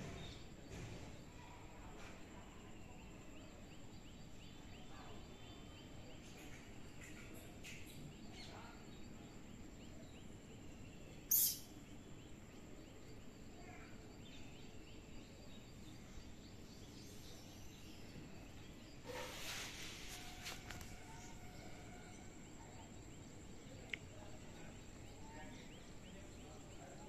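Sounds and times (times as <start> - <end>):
faint bird calls: 11.3 - 11.8.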